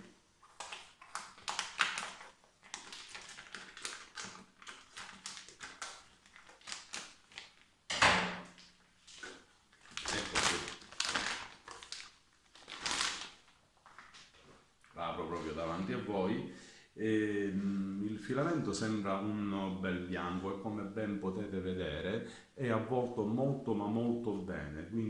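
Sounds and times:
plastic bag crinkling: 0:00.0 - 0:07.8, 0:08.6 - 0:14.4.

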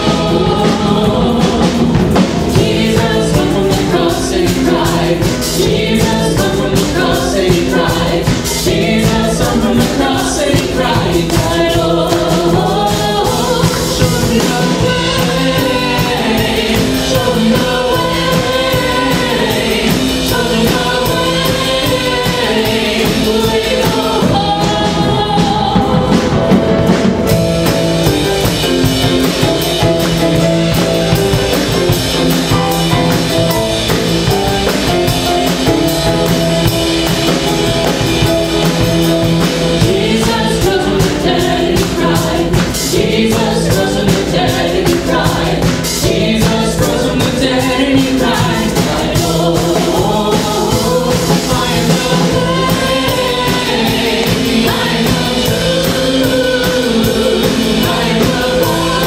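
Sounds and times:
women singing into microphones: 0:00.0 - 0:26.7, 0:39.8 - 0:59.0
drum kit and accompaniment: 0:00.0 - 0:59.0.

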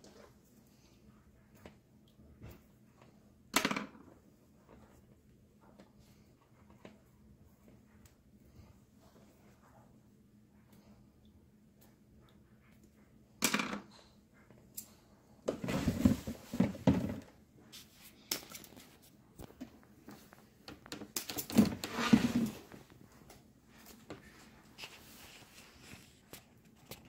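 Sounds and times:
wires and plastic parts rustling: 0:13.9 - 0:27.0
bumps and scrapes: 0:15.5 - 0:17.3, 0:21.5 - 0:22.9.

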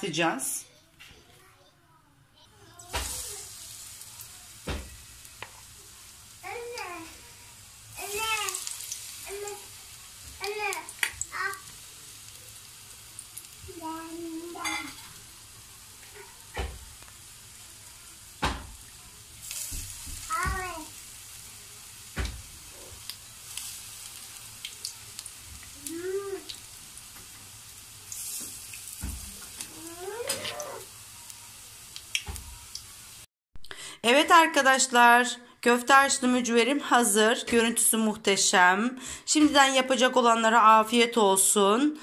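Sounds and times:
fritters sizzling in oil: 0:02.7 - 0:33.3.

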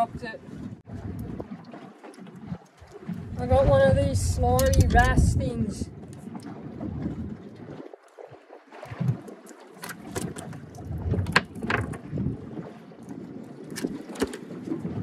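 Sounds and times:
wind gusting on microphone: 0:00.0 - 0:01.6, 0:02.5 - 0:07.9, 0:10.0 - 0:15.0
pliers clicking and knocking: 0:04.6 - 0:05.0.

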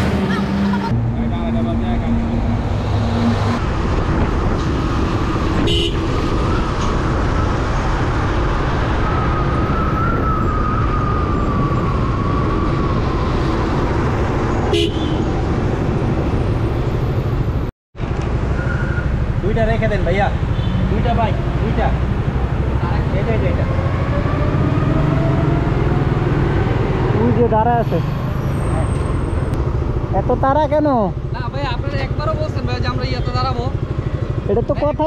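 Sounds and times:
highway traffic: 0:00.0 - 0:35.0
wind and road noise: 0:00.0 - 0:35.0.

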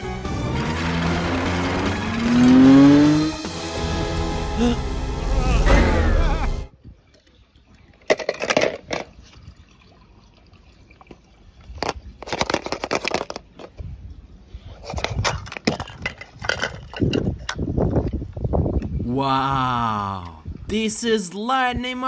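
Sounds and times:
gravel crunching and clattering: 0:14.8 - 0:18.9.

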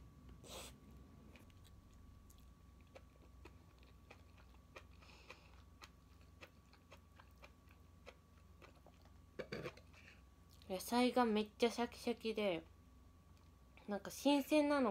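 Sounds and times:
chewing crisp raw vegetables: 0:00.9 - 0:10.7.

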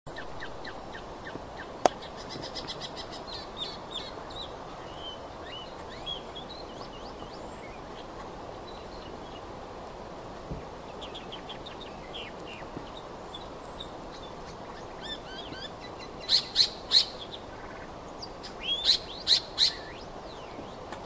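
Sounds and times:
bird chirping and twittering: 0:00.1 - 0:09.5, 0:10.8 - 0:21.0
background hiss: 0:00.1 - 0:21.0.

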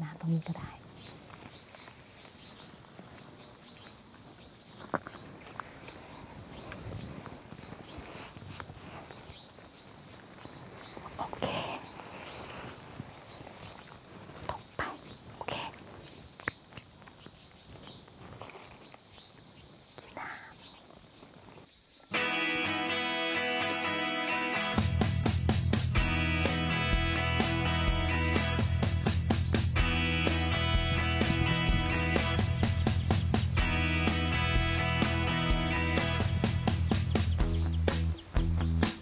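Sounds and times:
insects chirping: 0:00.0 - 0:39.0
rustling in leafy undergrowth: 0:01.1 - 0:19.3.

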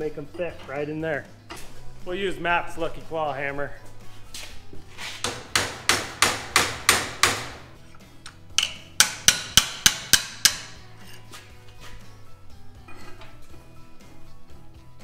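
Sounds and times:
hammer striking metal: 0:05.2 - 0:07.7, 0:08.6 - 0:10.8.

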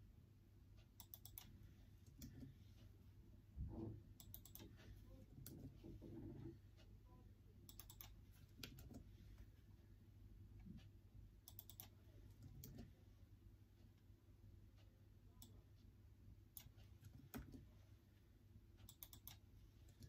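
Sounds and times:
laptop keyboard typing: 0:01.0 - 0:02.5, 0:04.2 - 0:04.8, 0:07.7 - 0:09.0, 0:11.5 - 0:12.9, 0:18.8 - 0:20.0.

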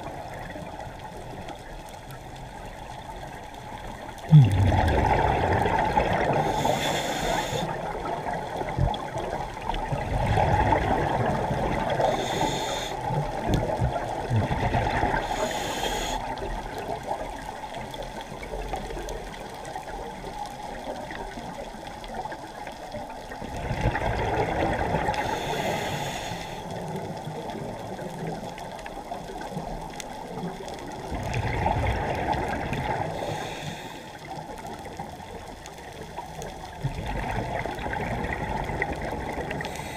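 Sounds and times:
exhaled bubbles underwater: 0:00.0 - 0:39.9
low water rush: 0:03.4 - 0:21.7.

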